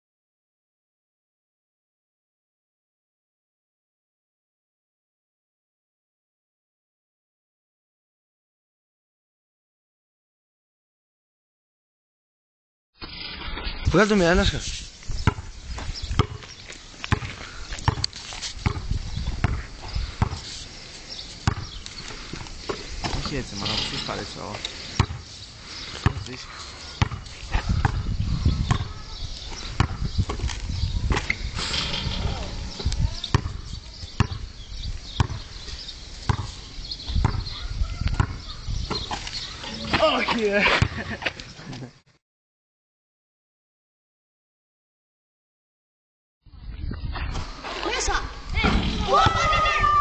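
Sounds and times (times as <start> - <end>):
basketball bouncing on concrete: 15.2 - 20.5, 21.4 - 23.4, 24.9 - 25.2, 26.0 - 26.3, 27.0 - 29.0, 29.7 - 34.5, 35.2 - 35.5, 36.3 - 39.3.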